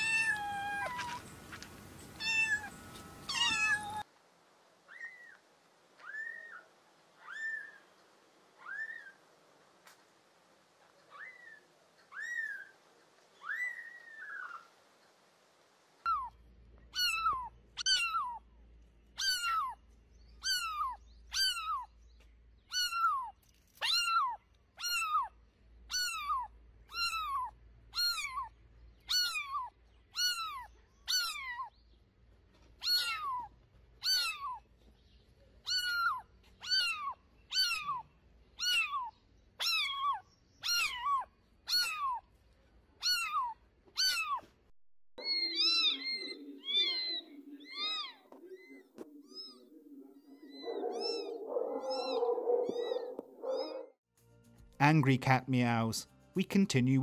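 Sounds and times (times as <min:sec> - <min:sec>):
kittens meowing: 0:00.0 - 0:01.2, 0:02.2 - 0:04.0, 0:16.1 - 0:18.4, 0:19.2 - 0:19.8, 0:20.4 - 0:21.9, 0:22.7 - 0:25.3, 0:25.9 - 0:28.5, 0:29.1 - 0:31.7, 0:32.8 - 0:34.6, 0:35.6 - 0:42.2, 0:43.0 - 0:44.5, 0:45.2 - 0:53.9.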